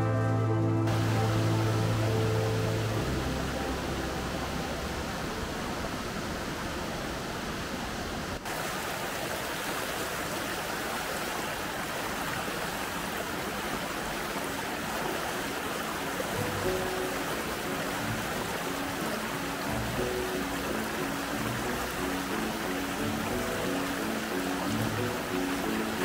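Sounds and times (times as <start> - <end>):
creek water rushing: 0.0 - 26.0.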